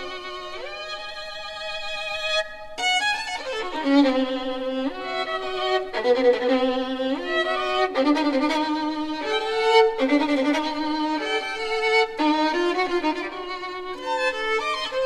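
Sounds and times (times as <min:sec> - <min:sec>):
violin playing long notes: 0:00.0 - 0:15.0.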